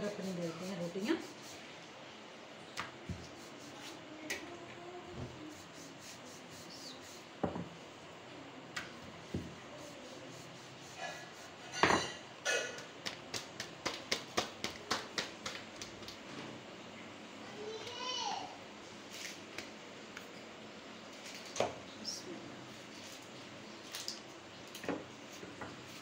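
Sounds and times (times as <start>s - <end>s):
rolling pin rubbing dough: 0.0s - 1.6s, 3.1s - 4.1s, 5.1s - 7.4s, 9.1s - 11.8s.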